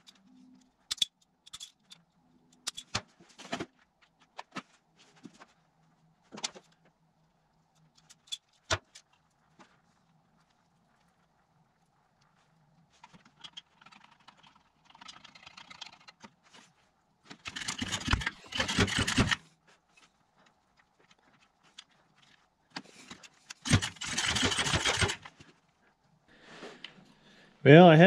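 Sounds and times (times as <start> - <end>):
recoil starter rope cranking engine: 17.4 - 19.4, 23.6 - 25.3.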